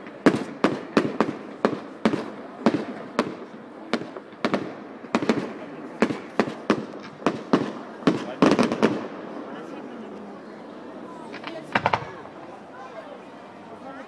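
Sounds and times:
fireworks bursting with sharp bangs: 0.0s - 9.8s, 11.2s - 12.5s.

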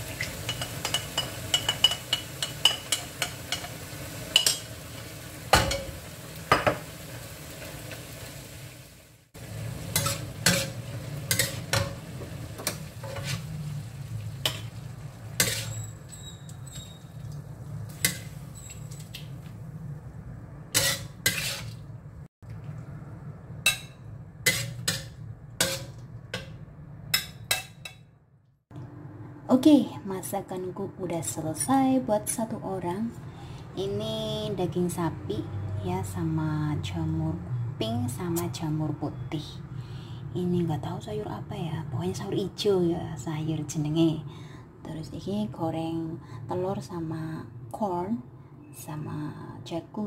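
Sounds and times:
food sizzling: 0.0s - 19.9s, 20.8s - 26.6s
metal spatula scraping a wok: 9.8s - 12.0s, 12.6s - 13.7s, 14.4s - 17.2s, 20.7s - 21.8s, 23.7s - 26.6s.

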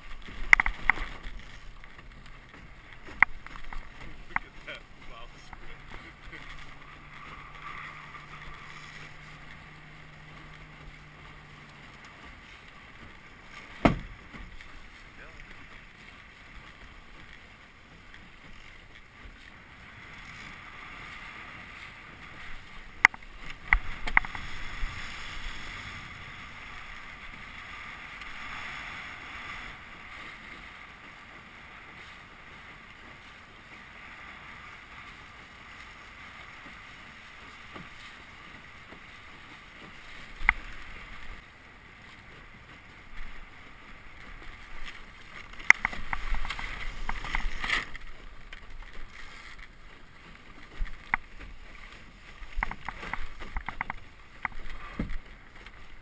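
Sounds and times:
light wind: 0.0s - 56.0s
water rushing along a boat hull: 0.0s - 56.0s
sharp knocks: 13.8s - 14.4s.

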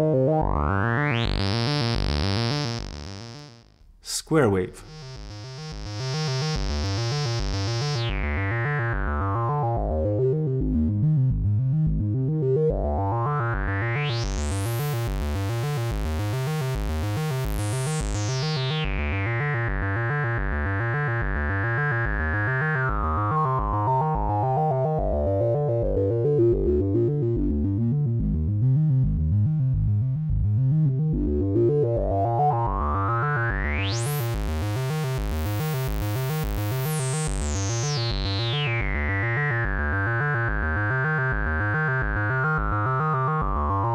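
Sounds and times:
synth with resonant filter sweep: 4.9s - 20.2s, 31.0s - 43.9s.

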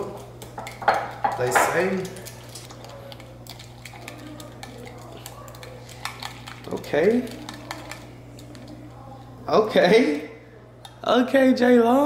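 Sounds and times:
spoon scraping a bowl: 0.0s - 8.9s.

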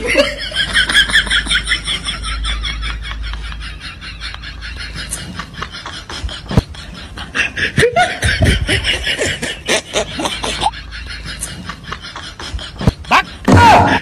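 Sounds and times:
person snickering: 4.6s - 14.0s.

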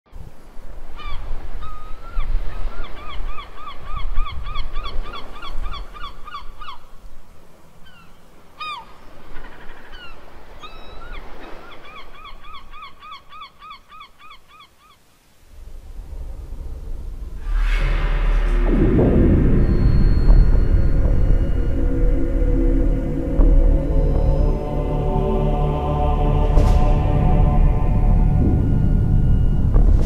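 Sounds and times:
low rumble: 15.5s - 30.0s
gulls calling: 17.5s - 30.0s.

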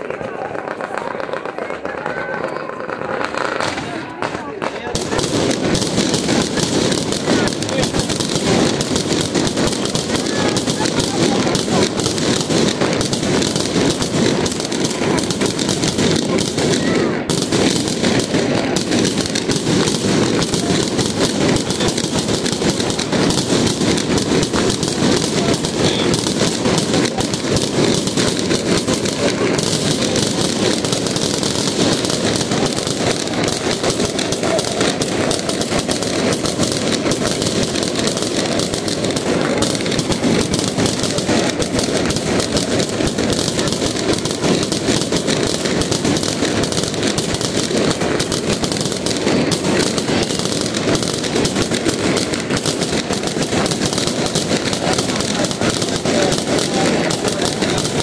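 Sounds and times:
fireworks bangs and crackling: 0.0s - 58.0s.

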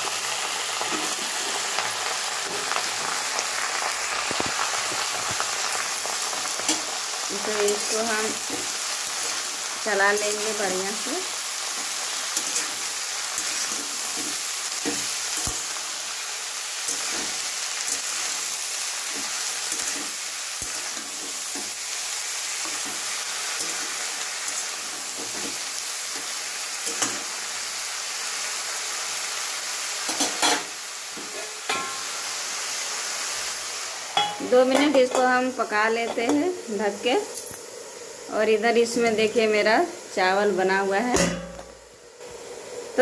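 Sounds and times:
vegetables sizzling in hot oil: 0.0s - 43.0s.

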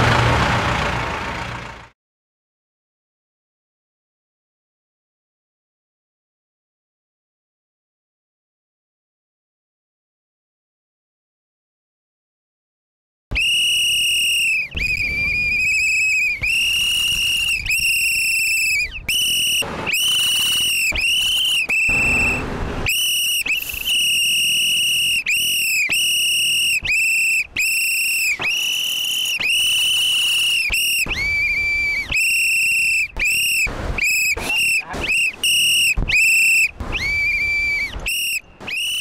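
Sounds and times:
whistle blasts: 13.3s - 39.0s.

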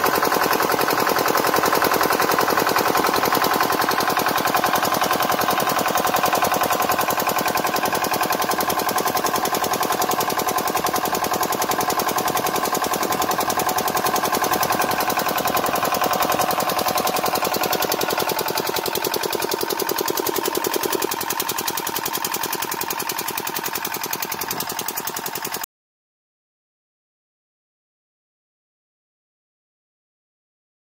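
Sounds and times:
diesel engine knocking: 0.0s - 25.7s.

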